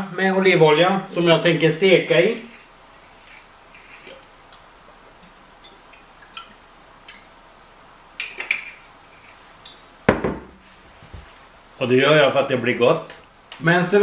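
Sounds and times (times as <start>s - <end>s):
bottle knocking down on surface: 10.1s - 10.6s.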